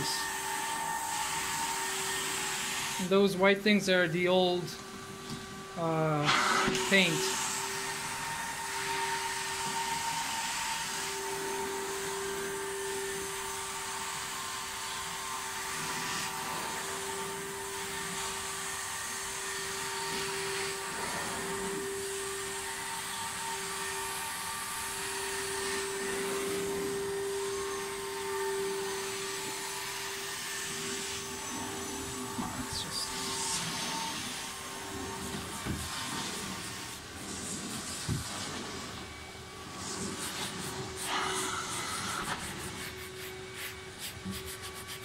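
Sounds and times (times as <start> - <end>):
suction air hissing: 39.7 - 45.0.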